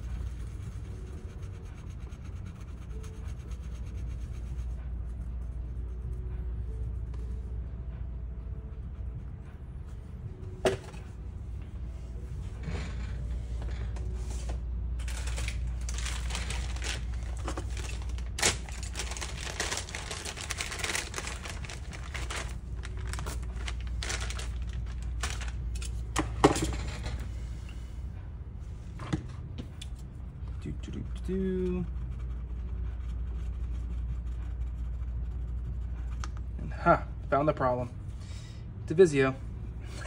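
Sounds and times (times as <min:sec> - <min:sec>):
low steady hum: 0:00.0 - 0:40.0
packaging rustling: 0:15.0 - 0:25.6.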